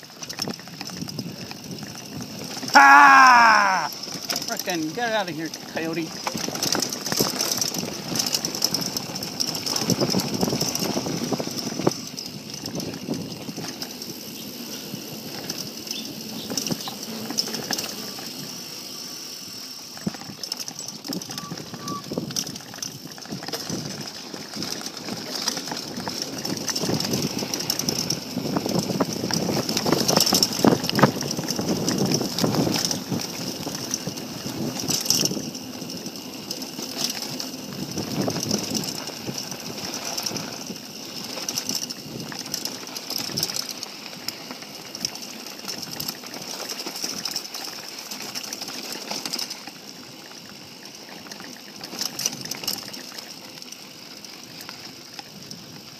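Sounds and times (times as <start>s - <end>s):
bike rattling and knocking: 0.0s - 55.9s
bike tyres crunching on gravel: 0.0s - 55.9s.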